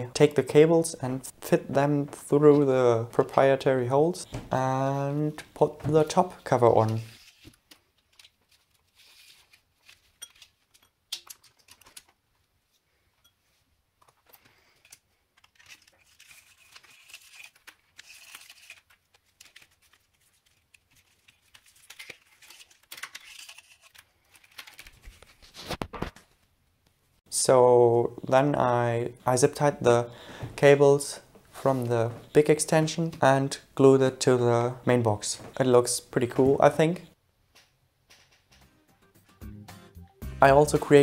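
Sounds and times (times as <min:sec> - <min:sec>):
rustling and clicking of wires: 0:05.4 - 0:12.9, 0:14.0 - 0:27.0.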